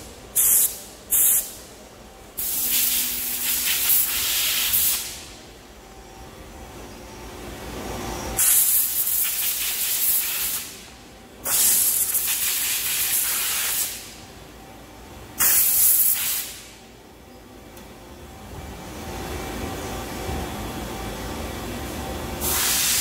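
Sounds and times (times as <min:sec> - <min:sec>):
machine hum: 0:00.0 - 0:09.0, 0:16.6 - 0:22.6
air blow gun hissing: 0:02.4 - 0:05.3, 0:22.4 - 0:23.0.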